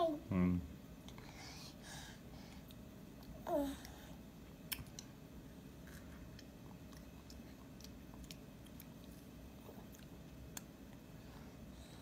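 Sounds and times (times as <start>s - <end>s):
low steady hum: 0.0s - 12.0s
toddler chewing food: 2.5s - 12.0s.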